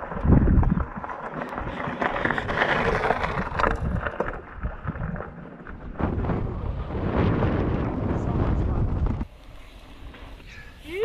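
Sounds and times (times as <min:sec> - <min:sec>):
bike tyres rattling on stones: 0:00.0 - 0:07.0
wind noise on microphone: 0:00.0 - 0:09.3.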